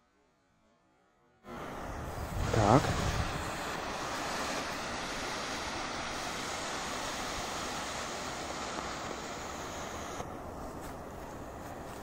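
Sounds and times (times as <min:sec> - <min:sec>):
smoke fountain hissing: 0:01.5 - 0:12.0.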